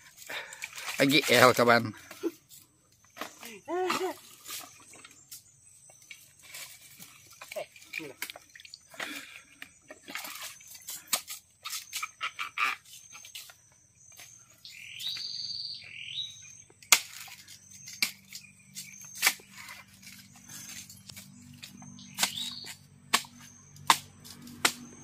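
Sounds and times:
machete chopping: 16.8 - 19.8, 21.6 - 25.0.

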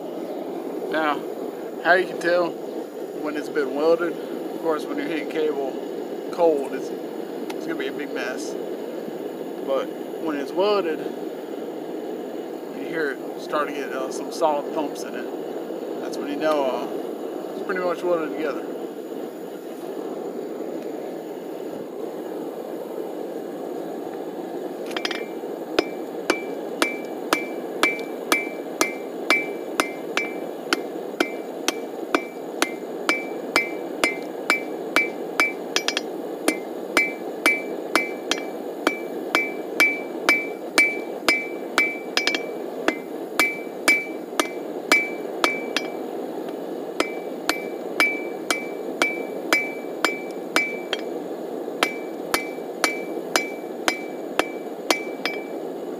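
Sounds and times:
hammer blows ringing on anvil: 24.9 - 46.0, 47.0 - 51.1, 51.8 - 55.6.

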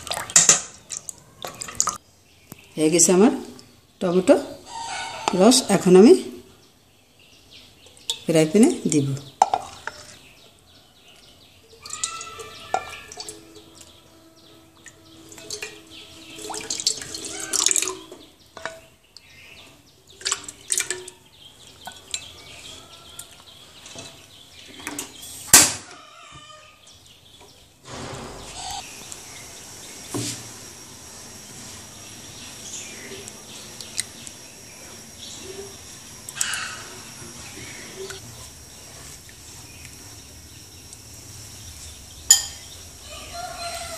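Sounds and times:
steady hiss: 27.8 - 43.9.

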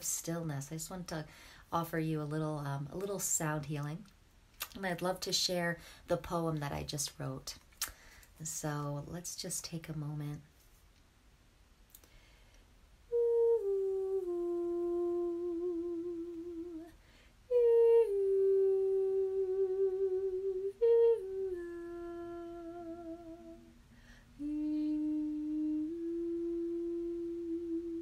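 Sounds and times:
woman humming long notes: 13.1 - 23.8, 24.4 - 28.0.

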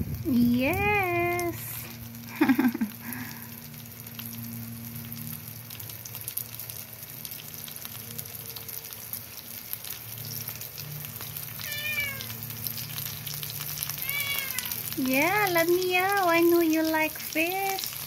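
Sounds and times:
food sizzling in a skillet: 0.0 - 18.0
cat meowing: 11.6 - 12.4, 13.9 - 15.0.

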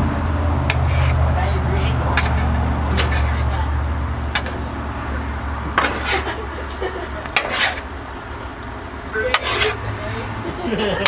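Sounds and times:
steady low hum: 0.0 - 11.0
metal spatulas scraping griddle: 0.6 - 1.3, 2.0 - 3.7, 5.6 - 11.0.

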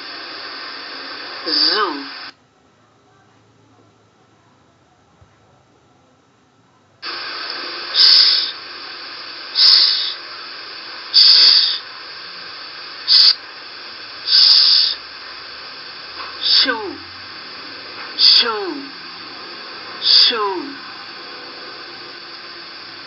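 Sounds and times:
steady recording hiss: 0.0 - 23.0
woman saying sh: 1.4 - 2.3, 14.3 - 15.0, 16.4 - 17.1, 18.1 - 19.0, 20.0 - 20.9.

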